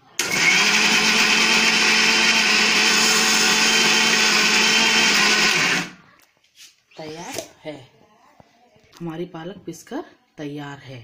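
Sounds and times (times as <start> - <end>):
mixer grinder whirring: 0.2 - 6.0.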